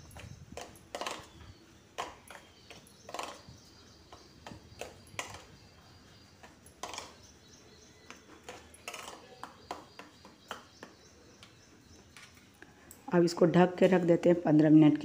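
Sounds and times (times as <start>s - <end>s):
metal spoon scraping steel bowl: 8.3s - 10.0s.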